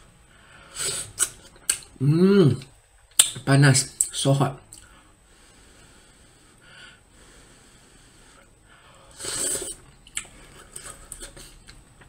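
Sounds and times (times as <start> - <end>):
airy slurp at mouth: 9.2 - 9.8.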